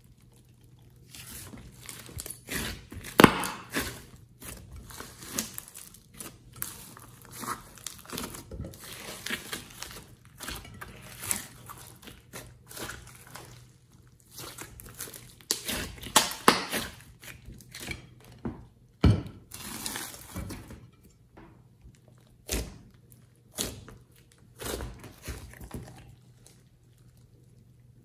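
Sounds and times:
slime squelching and popping: 0.2 - 17.3.

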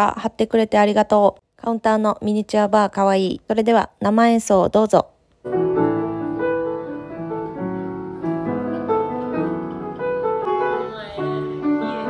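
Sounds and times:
upright piano playing: 5.4 - 12.0.

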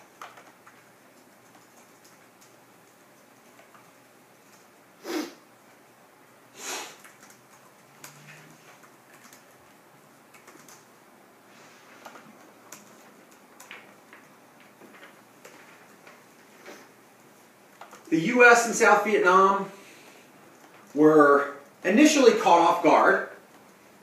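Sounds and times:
faint clicks and taps: 0.0 - 4.7, 7.0 - 10.9, 11.9 - 16.8, 17.7 - 18.1, 20.5 - 21.0.

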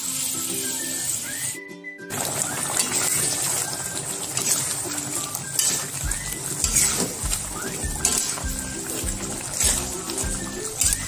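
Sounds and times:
sauce bubbling and sizzling: 0.0 - 11.0
spatula stirring in wok: 2.2 - 11.0.

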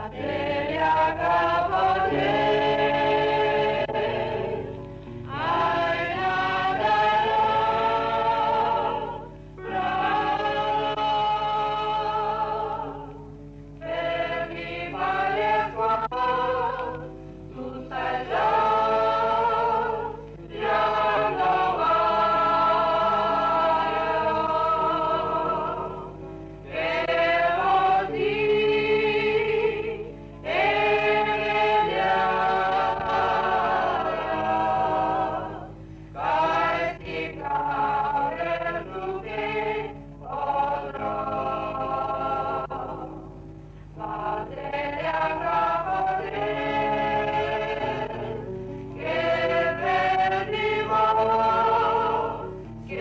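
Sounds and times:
choir singing a hymn: 0.0 - 53.0.

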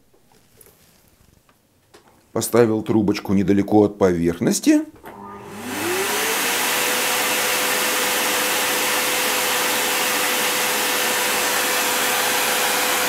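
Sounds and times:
electric air blower whine: 5.0 - 13.0.

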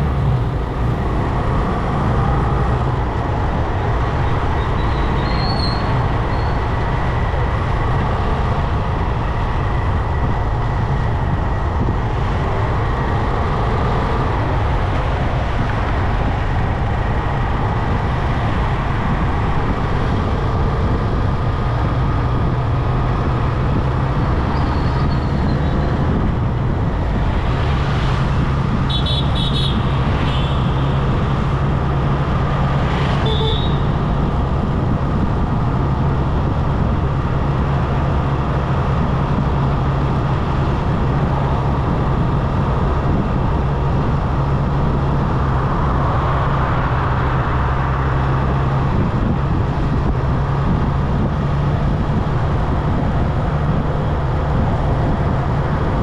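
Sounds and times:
road and wind noise: 0.0 - 56.0
vehicle horns beeping: 28.9 - 30.7, 33.2 - 33.9.

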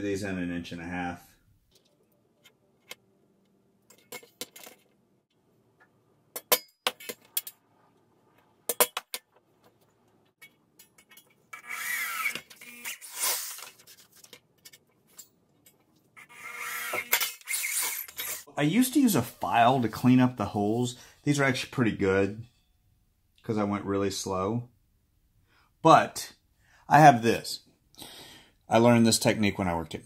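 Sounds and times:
electric drill grinding into metal: 11.5 - 13.7, 16.2 - 18.5.

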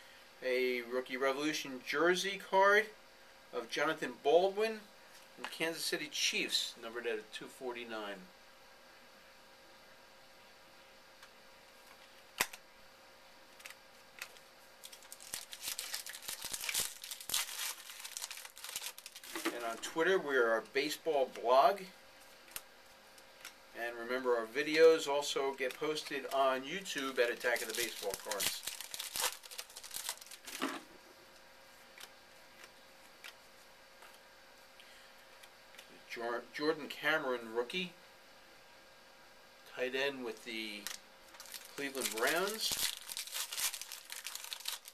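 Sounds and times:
foil wrapper crinkling and tearing: 13.6 - 19.8, 25.6 - 30.6, 40.3 - 44.9.

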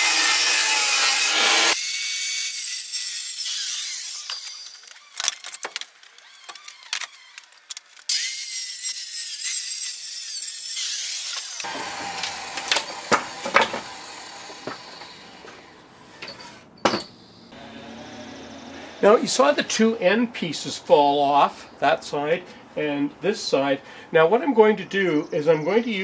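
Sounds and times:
wooden boards clattering: 11.7 - 13.9.

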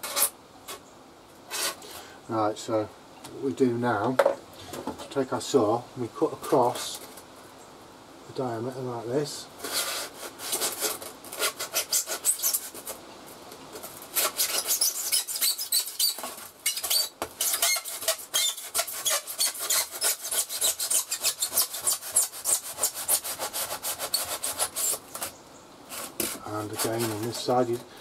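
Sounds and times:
handsaw rasping through foam: 9.6 - 13.0, 14.1 - 25.3, 25.9 - 27.9.

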